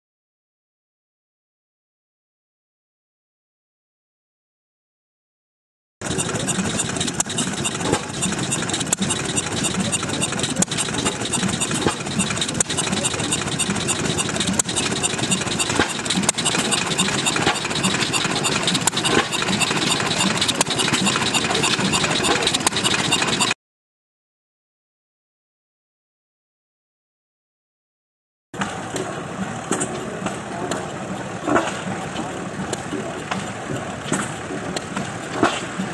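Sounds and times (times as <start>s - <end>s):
hit-or-miss engine running: 6.0s - 23.6s.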